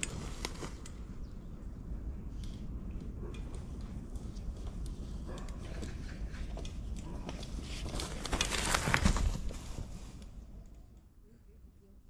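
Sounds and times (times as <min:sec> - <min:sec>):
unicycle crunching over pine needles: 0:00.0 - 0:01.1, 0:07.6 - 0:09.8.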